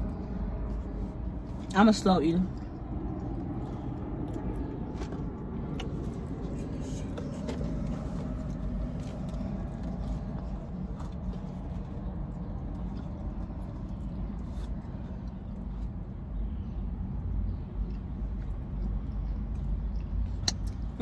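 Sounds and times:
steady low rumble: 0.0 - 21.0
person eating: 2.5 - 15.8.

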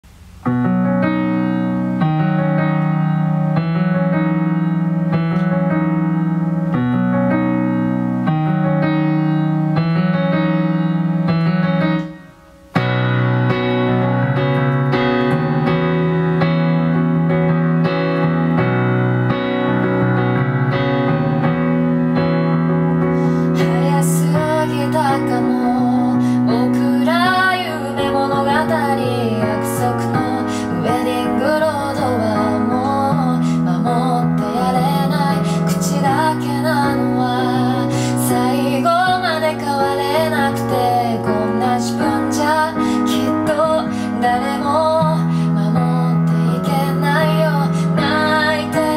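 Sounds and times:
piano playing chords: 0.0 - 48.9
woman singing: 23.5 - 48.9.

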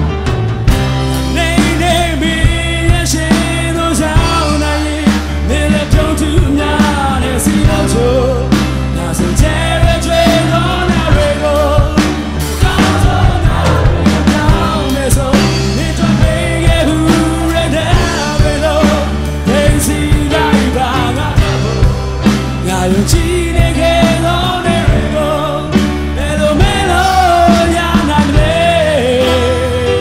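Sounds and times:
drum kit with crashing cymbals: 0.0 - 30.0
live rock band: 0.0 - 30.0
piano: 0.0 - 30.0
person singing: 1.2 - 30.0.

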